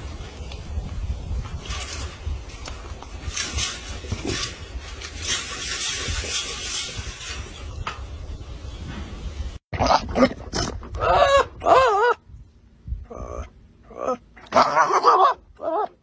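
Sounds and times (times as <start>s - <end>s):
rustling and scraping: 0.0s - 11.6s.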